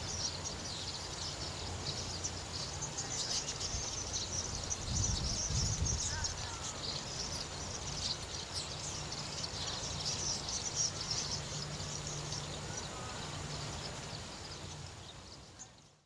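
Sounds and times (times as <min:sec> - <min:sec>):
flock of birds calling: 0:00.0 - 0:16.0.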